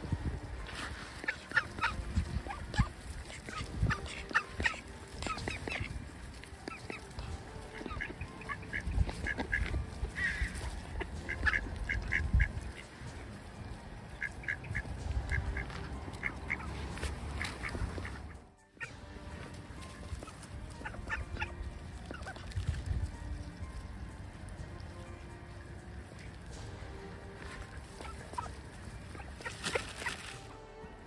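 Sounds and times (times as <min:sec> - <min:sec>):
low rumbling: 0:00.0 - 0:06.6
ducks quacking: 0:00.0 - 0:24.0, 0:24.6 - 0:30.5.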